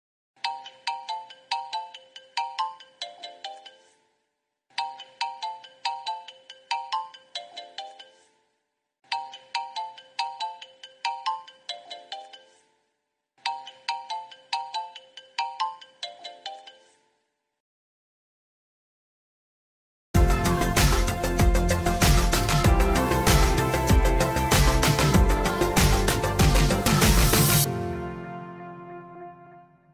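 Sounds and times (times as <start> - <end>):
phone ringtone melody: 0.4 - 4.0, 4.8 - 8.4, 9.1 - 12.7, 13.4 - 17.0, 20.9 - 27.8.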